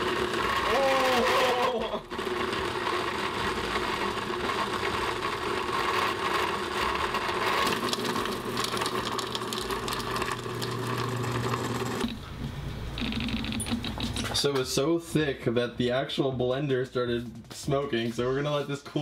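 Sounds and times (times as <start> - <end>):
blender motor running: 0.0 - 12.2.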